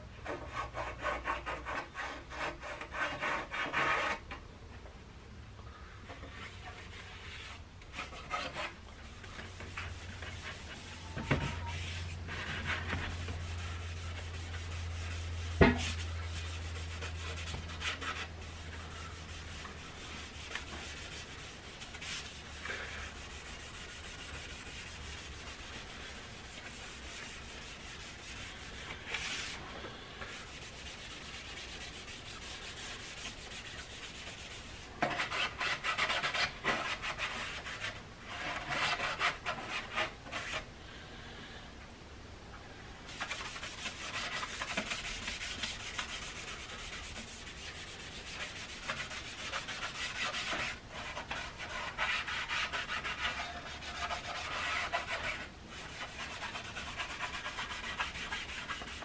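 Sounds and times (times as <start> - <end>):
cloth rubbing on wood: 6.3 - 29.6, 30.2 - 37.9, 43.1 - 59.0.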